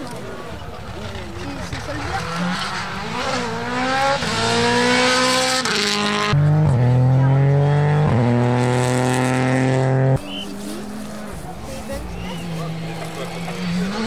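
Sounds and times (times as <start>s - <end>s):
rally car engine accelerating: 0.5s - 14.0s.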